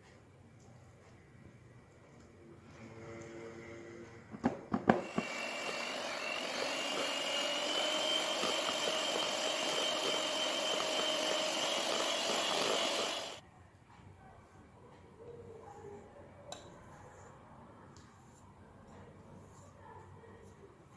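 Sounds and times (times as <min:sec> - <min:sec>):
electric hand mixer running: 0:04.9 - 0:13.4.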